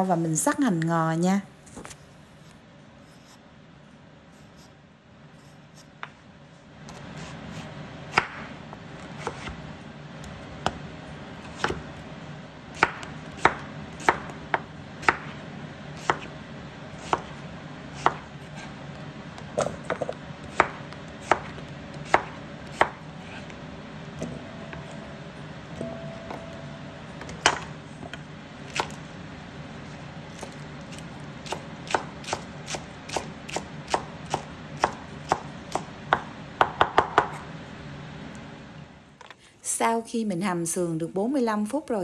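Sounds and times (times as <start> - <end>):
knife chopping on wooden board: 12.8 - 15.3, 16.0 - 16.3, 17.0 - 17.3, 18.0 - 18.7, 19.6 - 23.0, 27.4 - 27.7, 30.4 - 37.4.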